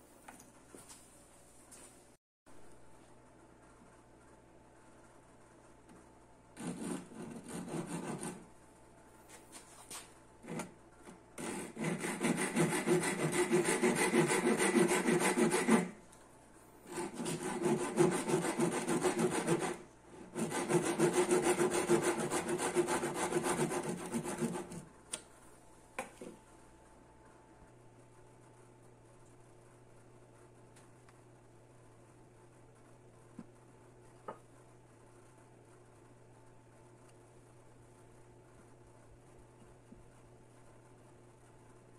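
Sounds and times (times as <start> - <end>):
handsaw cutting wood: 6.6 - 8.4, 11.4 - 16.0, 16.9 - 24.8.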